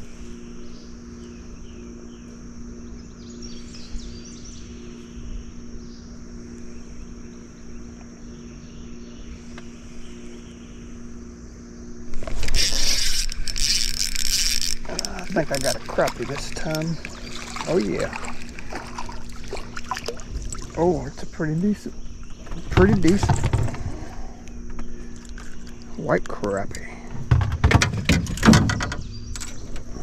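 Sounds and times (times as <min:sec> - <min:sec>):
small motor humming: 0:00.0 - 0:26.0
high-pitched insect drone: 0:00.0 - 0:27.2.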